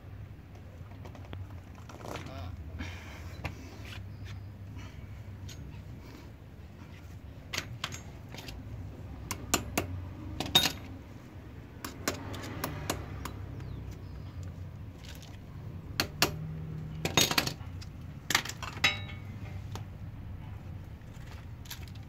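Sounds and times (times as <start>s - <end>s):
metal chain clinking and rattling: 10.4s - 10.9s, 18.4s - 19.6s.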